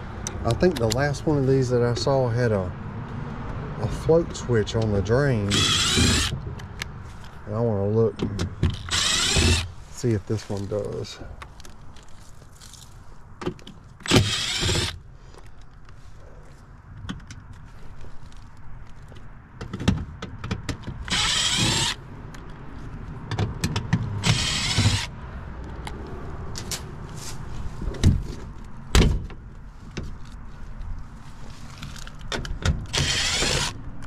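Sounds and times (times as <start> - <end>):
cordless driver running: 5.5 - 6.4, 8.8 - 9.7, 14.0 - 15.0, 21.0 - 22.0, 24.2 - 25.1, 32.9 - 33.8.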